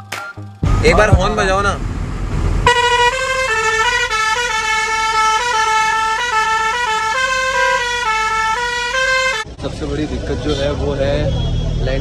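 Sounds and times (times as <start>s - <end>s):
truck musical horn playing: 2.6s - 9.5s.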